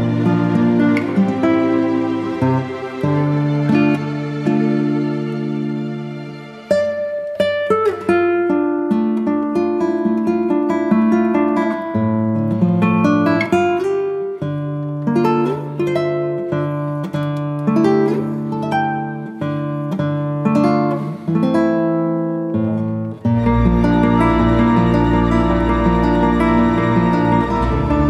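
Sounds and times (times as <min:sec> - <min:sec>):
plucked strings music: 0:00.0 - 0:28.0.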